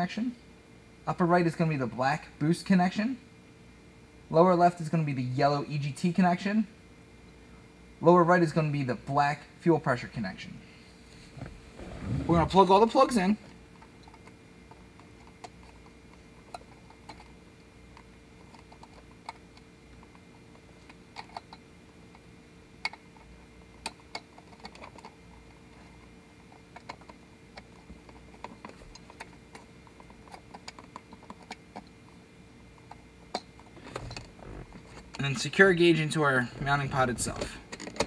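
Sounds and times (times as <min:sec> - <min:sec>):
small plastic clicks and rattles: 0:22.8 - 0:32.0.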